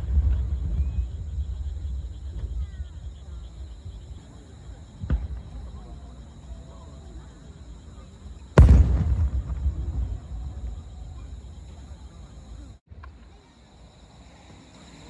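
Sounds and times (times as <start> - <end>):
firework boom: 0.0 - 3.2, 5.0 - 5.8, 8.6 - 11.7.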